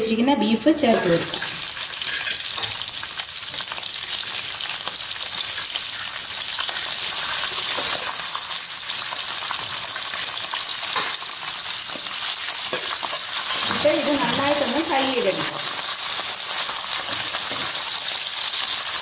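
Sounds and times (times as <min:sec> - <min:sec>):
metal spoon scraping pan: 0:00.9 - 0:02.8
meat sizzling in oil: 0:00.9 - 0:19.0.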